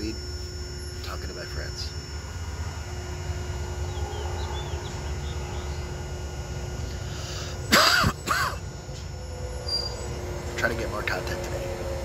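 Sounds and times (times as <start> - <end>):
highway traffic rumble: 0.0 - 12.0
faint bird chirps: 3.8 - 6.0.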